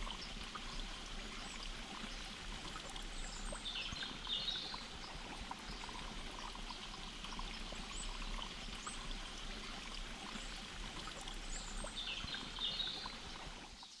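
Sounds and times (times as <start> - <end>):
stream water rushing: 0.0 - 13.7.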